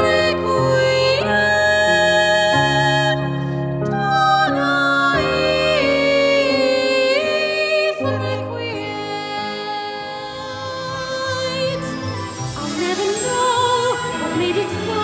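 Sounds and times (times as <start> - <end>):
soprano singing with vibrato: 0.0 - 15.0
instrumental accompaniment: 8.8 - 15.0.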